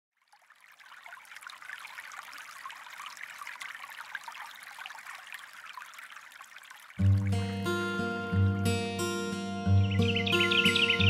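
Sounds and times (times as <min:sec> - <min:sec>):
fountain splashing into pool: 0:00.1 - 0:07.4.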